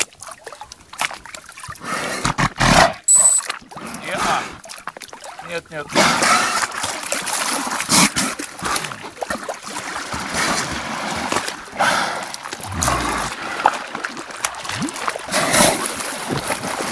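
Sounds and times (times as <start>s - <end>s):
water splashing and sloshing: 0.0s - 16.9s.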